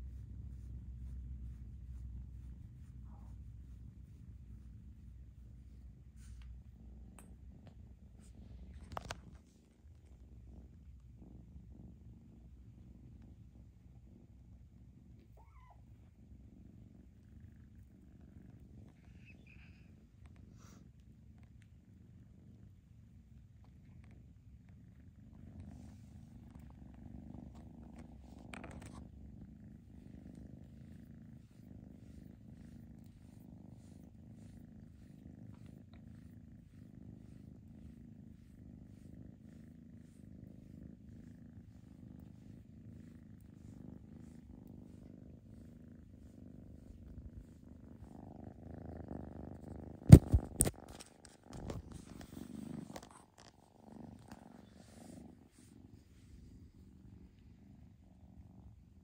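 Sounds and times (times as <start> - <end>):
kitten purring: 0.0 - 59.0
rustling: 25.4 - 57.3.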